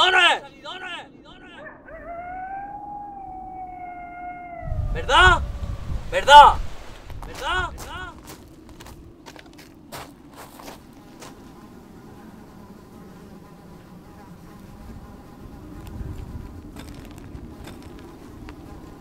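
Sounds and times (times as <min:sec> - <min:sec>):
flying insects buzzing: 0:01.1 - 0:19.0
low rumble: 0:01.8 - 0:09.8.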